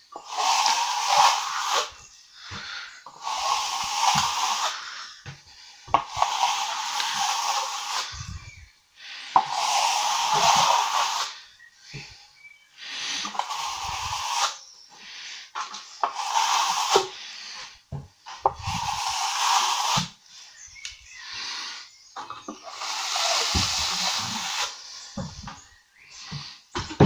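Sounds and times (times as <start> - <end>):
trowel scraping wet plaster: 0.2 - 1.9, 6.0 - 8.4, 9.4 - 11.4, 13.0 - 14.6, 15.6 - 17.6, 18.3 - 20.2.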